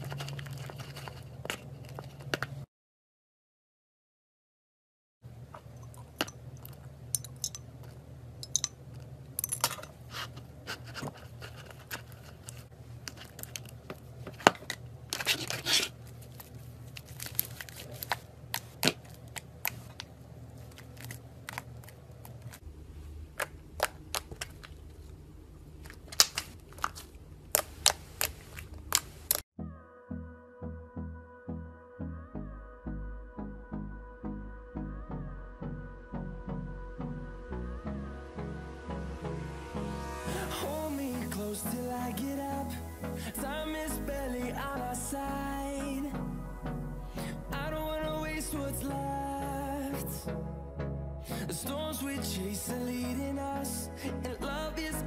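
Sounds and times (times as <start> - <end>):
steady low hum: 5.3 - 29.4, 30.8 - 55.0
slime squelching: 23.2 - 29.4.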